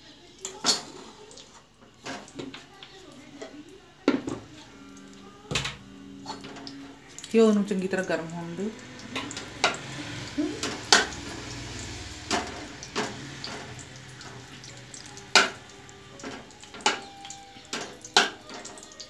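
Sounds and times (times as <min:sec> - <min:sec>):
faint sizzle of melting fat: 0:00.0 - 0:19.0
metal skimmer tapping on pan: 0:15.3 - 0:18.9.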